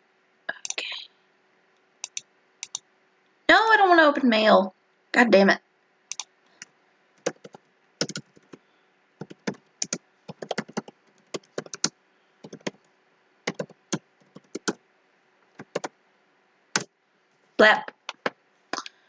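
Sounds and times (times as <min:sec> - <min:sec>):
keyboard keys clicking: 0:02.0 - 0:02.8, 0:07.2 - 0:08.6, 0:09.2 - 0:12.8, 0:13.5 - 0:14.8, 0:15.6 - 0:15.9.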